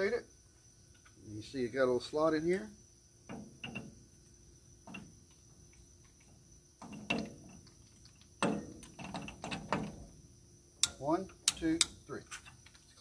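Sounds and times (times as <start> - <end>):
torque tool clicking on nut: 10.8 - 12.8.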